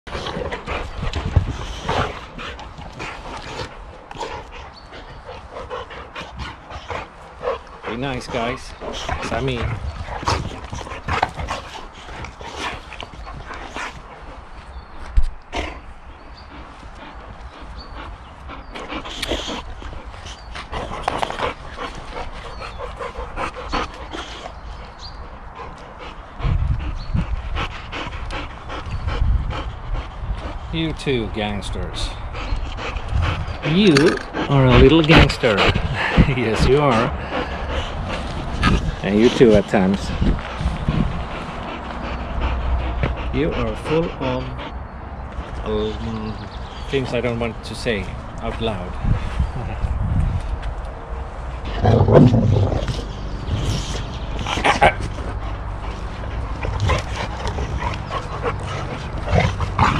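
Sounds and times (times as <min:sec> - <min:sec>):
dogs growling and barking in play: 0:00.1 - 0:30.6, 0:32.2 - 0:45.7, 0:50.4 - 0:59.9
paws and bodies scuffling: 0:00.1 - 0:31.6, 0:32.4 - 0:44.0, 0:45.3 - 0:59.9
low rumble: 0:48.1 - 0:59.9.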